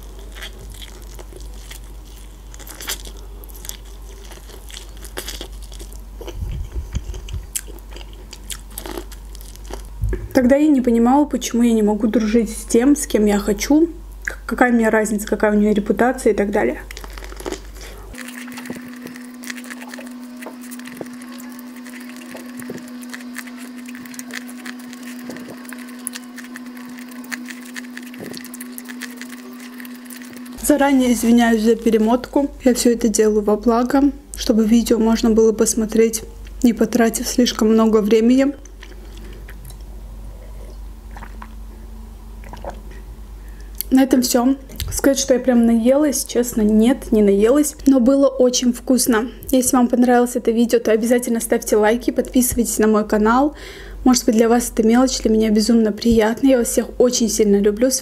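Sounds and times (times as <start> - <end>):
biting and chewing corn: 0.0 - 10.0, 16.9 - 32.3
steady low hum: 0.0 - 58.0
low thumps: 10.0 - 10.5.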